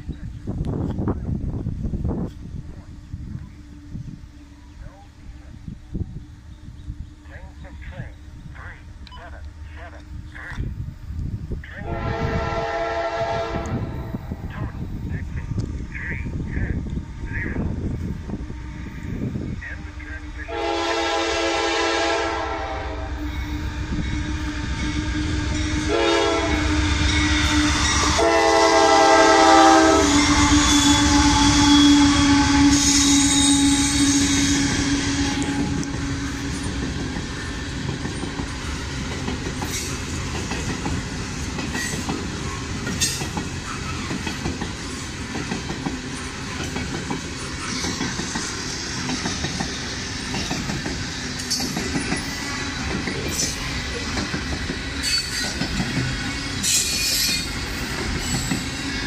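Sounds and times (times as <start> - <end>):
train wheels rumbling and clattering: 7.6 - 59.0
locomotive horn blowing: 11.8 - 14.4, 18.3 - 36.7.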